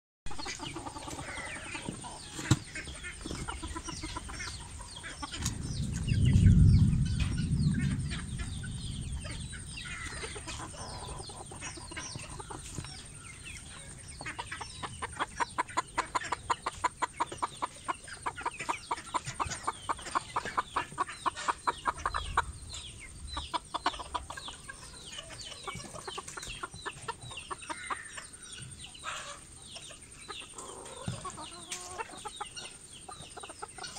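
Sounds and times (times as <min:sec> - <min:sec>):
chickens clucking and chirping: 0:00.3 - 0:33.9
loud low rumble: 0:05.5 - 0:10.4.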